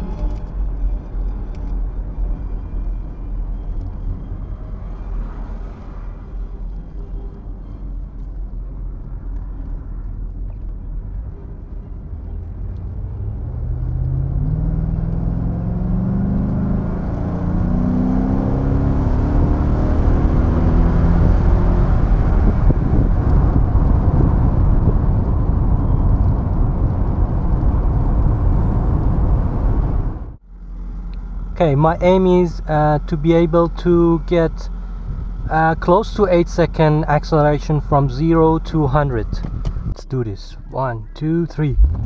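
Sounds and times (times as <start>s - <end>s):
road and wind noise: 0.0s - 42.0s
car engine accelerating: 8.2s - 35.8s, 36.8s - 42.0s.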